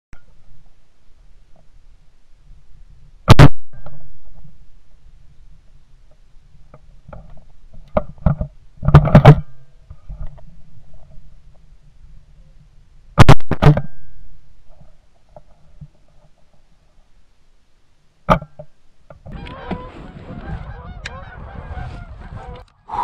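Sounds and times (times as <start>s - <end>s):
geese honking: 19.3s - 23.0s.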